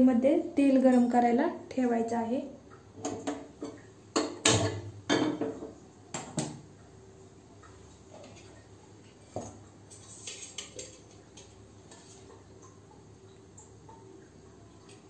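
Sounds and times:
metal pan clanking on stove: 3.0s - 5.6s.

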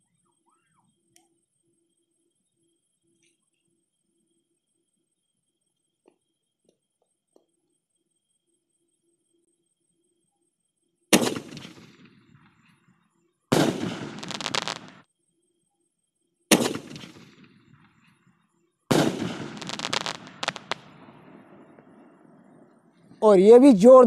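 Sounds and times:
firework bangs: 11.2s - 12.6s, 13.5s - 15.0s, 16.5s - 18.1s, 18.9s - 22.6s
firework crackles: 11.2s - 12.7s, 13.5s - 15.0s, 16.5s - 22.6s.

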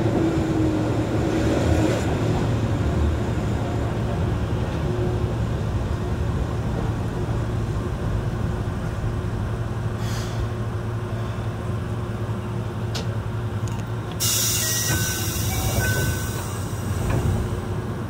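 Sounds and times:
tram equipment humming: 0.0s - 18.0s
air hissing: 14.2s - 17.6s.

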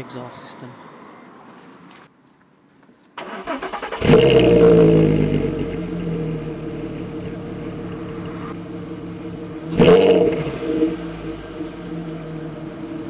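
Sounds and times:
car engine revving and idling: 3.5s - 13.0s.

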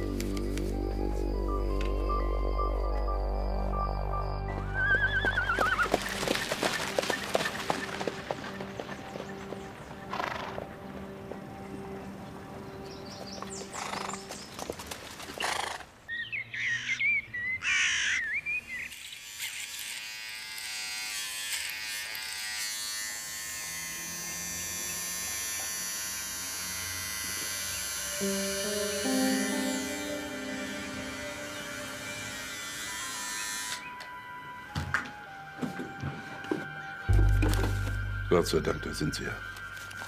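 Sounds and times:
background music: 0.0s - 14.5s, 27.8s - 40.0s
birds chirping: 4.4s - 19.3s
electric shaver buzzing: 18.9s - 34.0s.

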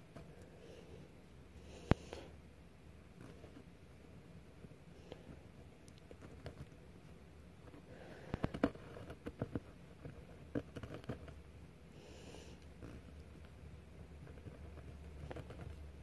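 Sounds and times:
pen scratching on paper: 8.3s - 11.4s, 14.2s - 16.0s.

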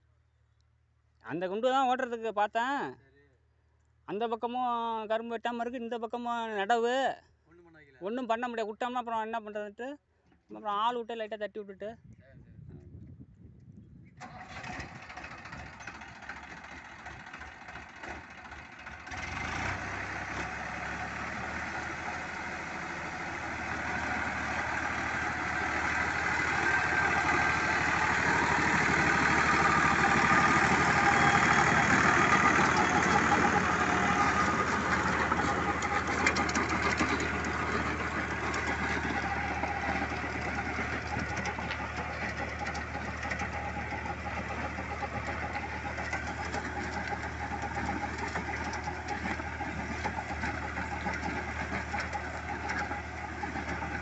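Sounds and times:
tractor diesel engine under load: 14.2s - 54.0s.

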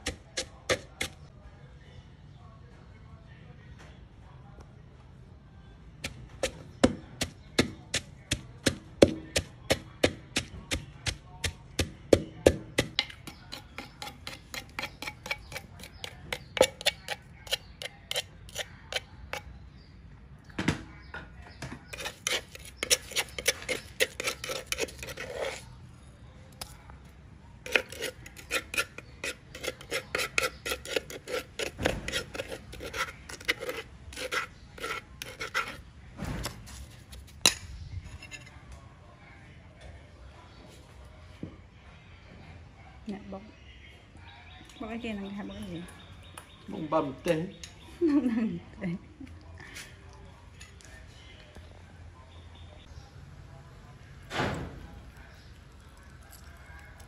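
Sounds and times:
pestle pounding in mortar: 0.0s - 1.2s, 6.0s - 19.1s, 27.7s - 35.8s
metal spoon scraping paste: 9.1s - 19.9s, 21.8s - 25.8s, 26.5s - 27.0s, 27.6s - 38.6s, 54.5s - 57.0s.

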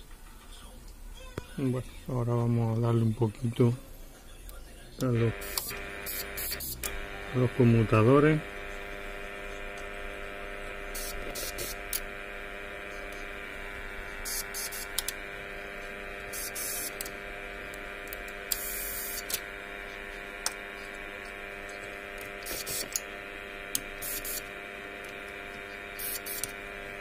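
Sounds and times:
steady electrical hum: 0.0s - 27.0s
aerosol spray hissing: 24.0s - 24.5s.

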